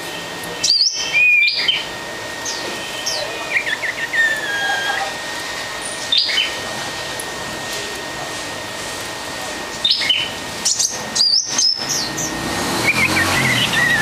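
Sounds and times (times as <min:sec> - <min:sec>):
songbird chirping: 0:09.8 - 0:14.0.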